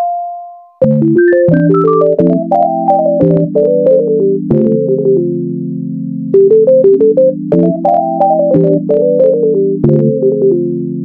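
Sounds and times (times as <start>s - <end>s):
electronic keyboard melody: 0.0s - 11.0s
held synth chords: 0.8s - 11.0s.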